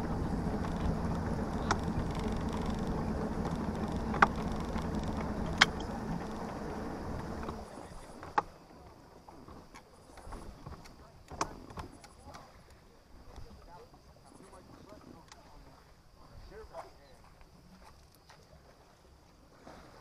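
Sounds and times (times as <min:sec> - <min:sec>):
boat motor running: 0:00.0 - 0:08.7
sharp clicks or knocks: 0:00.5 - 0:06.6.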